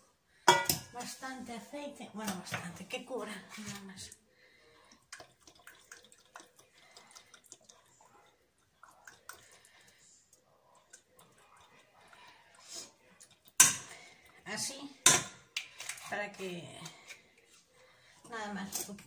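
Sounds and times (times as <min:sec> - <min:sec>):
oil trickling into a pot: 0:04.1 - 0:14.5.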